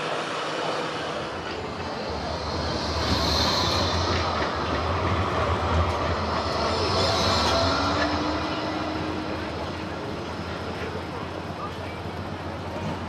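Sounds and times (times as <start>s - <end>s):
high hiss: 0.0s - 10.4s
faint rising whine: 0.0s - 11.4s
tram wheels rumbling on rail: 0.0s - 13.0s.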